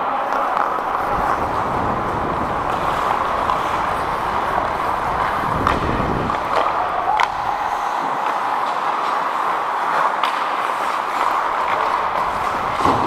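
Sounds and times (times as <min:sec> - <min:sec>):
skate blades scraping on ice: 0:00.1 - 0:13.0
wind rumble on microphone: 0:00.5 - 0:07.8, 0:11.2 - 0:13.0.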